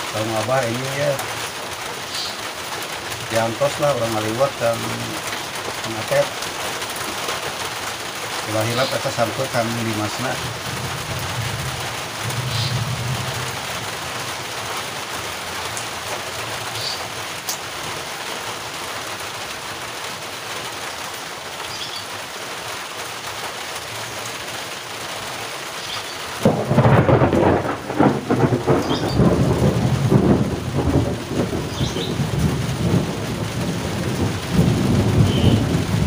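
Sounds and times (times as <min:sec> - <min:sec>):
steady rain falling: 0:00.0 - 0:36.0
thunder crash rumbling: 0:10.3 - 0:14.2, 0:26.4 - 0:36.0.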